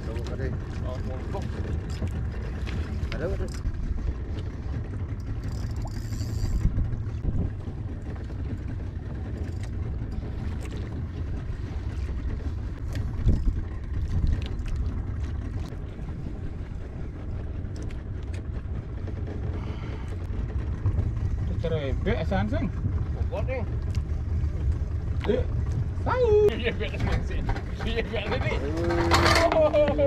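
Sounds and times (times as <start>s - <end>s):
wind and boat rumble: 0.0s - 30.0s
small reel clicks: 5.2s - 6.7s
fishing reel buzz: 5.4s - 6.7s.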